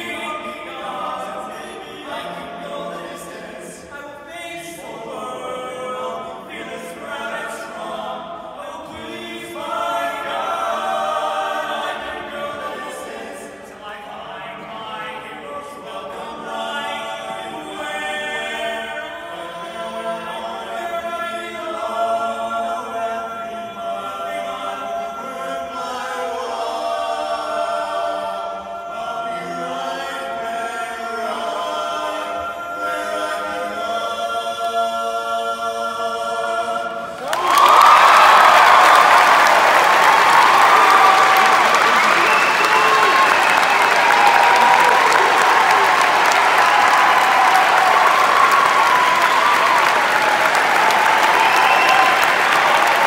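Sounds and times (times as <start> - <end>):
male quartet singing a cappella: 0.0 - 53.0
applause: 37.2 - 53.0.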